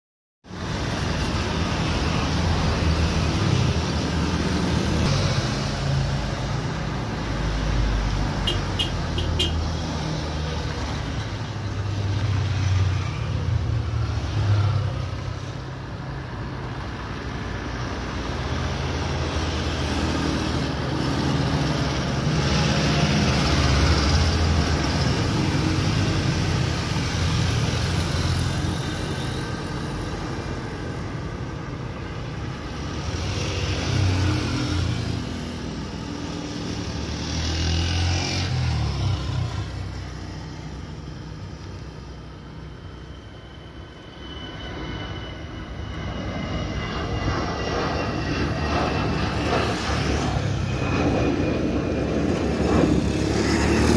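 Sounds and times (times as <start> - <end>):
distant jet engine rumble: 0.5 - 53.9.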